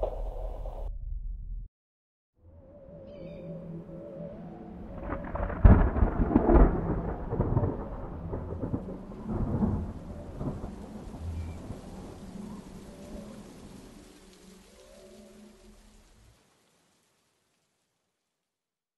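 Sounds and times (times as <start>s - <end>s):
rain hissing: 4.8s - 18.6s
rolling thunder: 4.9s - 14.0s
thunderclap: 4.9s - 14.0s.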